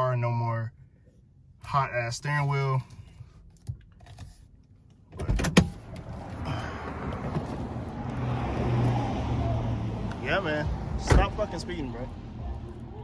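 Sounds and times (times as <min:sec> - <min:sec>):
car approaching on road: 0:05.7 - 0:13.0.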